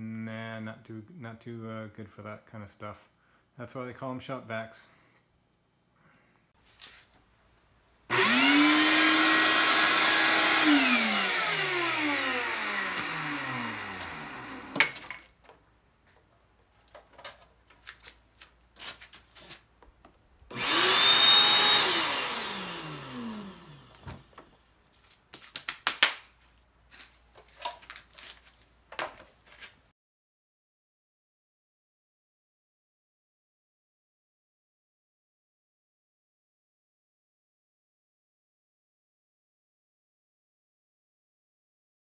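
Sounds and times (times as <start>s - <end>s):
vacuum motor whining: 8.1s - 15.0s, 20.5s - 24.4s
clicks and handling knocks: 14.0s - 18.2s.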